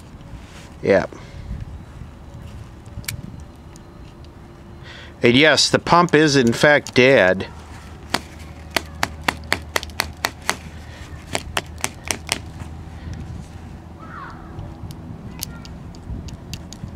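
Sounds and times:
sharp clicks of wiring handled: 14.2s - 16.9s.

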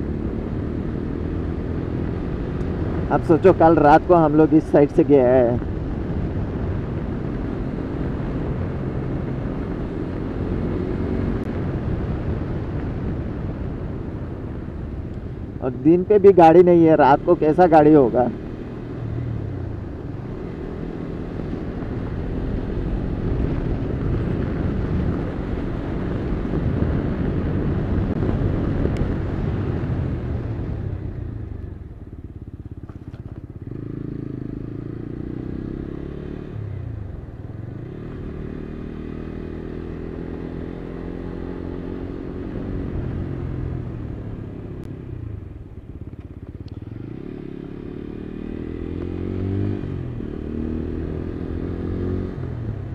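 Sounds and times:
motorcycle engine: 0.0s - 52.9s
rush of wind and road noise: 0.0s - 52.9s.

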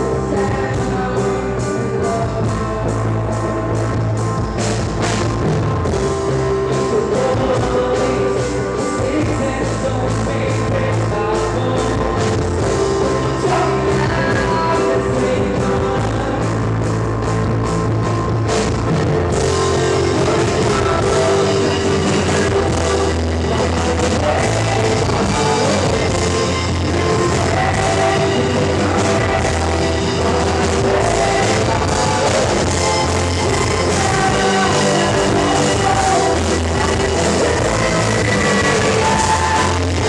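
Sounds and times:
live rock band playing: 0.0s - 40.0s
vocals: 0.0s - 40.0s
steady drum beat: 8.8s - 40.0s.

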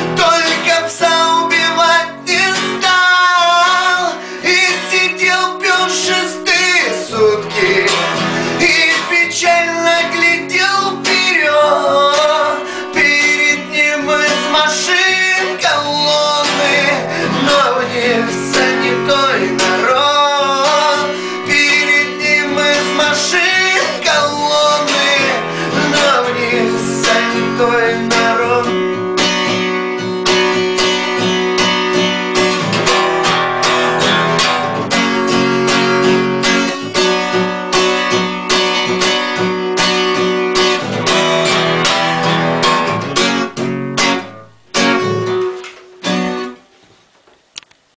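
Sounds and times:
person singing wordlessly: 0.0s - 29.2s
acoustic guitar strumming: 0.0s - 46.9s.

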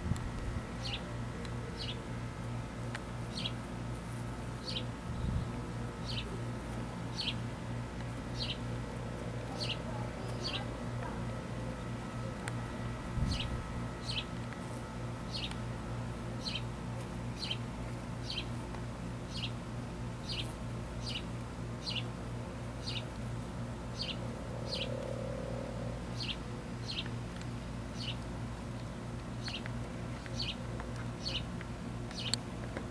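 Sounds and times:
steady low hum: 0.0s - 32.9s
bird chirping: 23.9s - 25.0s, 26.1s - 27.1s.

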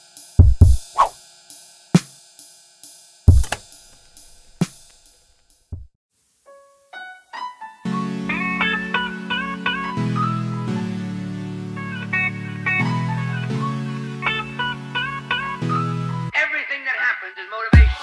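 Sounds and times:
kick drum hits: 0.4s - 0.8s, 3.3s - 3.6s.

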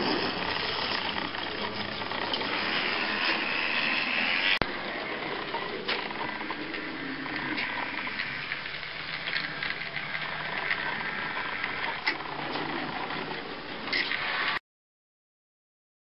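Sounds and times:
scattered clicks: 5.5s - 14.6s.

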